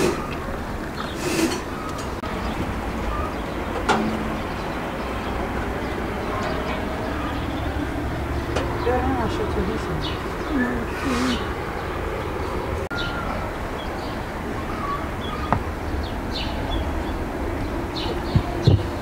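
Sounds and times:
small birds chirping: 0.0 - 19.0
low outdoor rumble: 0.1 - 19.0.

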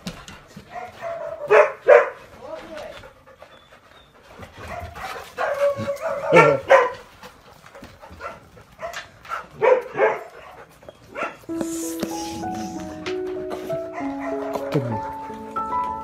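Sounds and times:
dog barking and yipping: 0.7 - 2.3, 4.6 - 11.5, 13.9 - 14.6
music with steady tones: 11.5 - 16.0.

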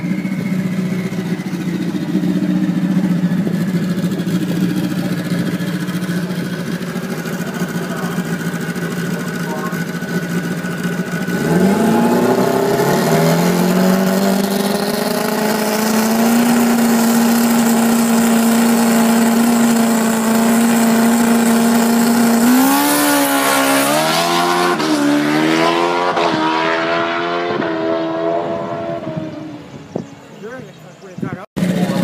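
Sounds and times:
motorcycle engine revving: 0.0 - 30.7, 31.6 - 32.0.

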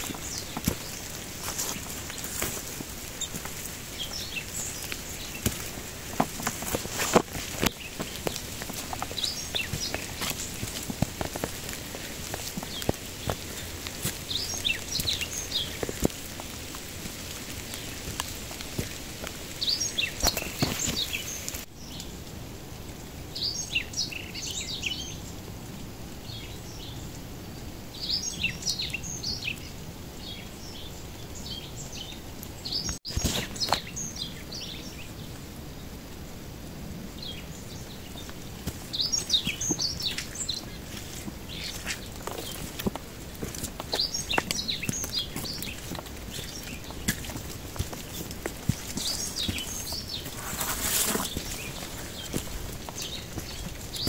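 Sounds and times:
footsteps on wet dirt: 0.0 - 21.7, 32.7 - 35.0, 37.2 - 54.0
small birds chirping: 0.0 - 22.3, 23.0 - 25.5, 26.2 - 36.0, 37.0 - 54.0
light rain hiss: 0.0 - 54.0.

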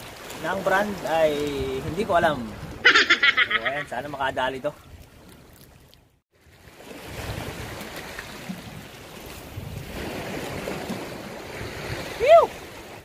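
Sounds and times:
wind buffeting microphone: 7.0 - 13.0.

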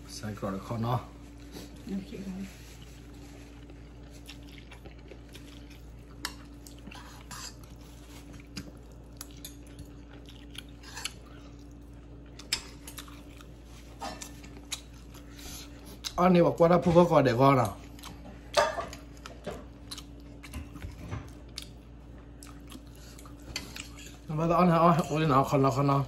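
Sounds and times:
faint steady hum: 0.0 - 26.0
person chewing and slurping noodles: 2.7 - 16.2, 17.8 - 24.3.

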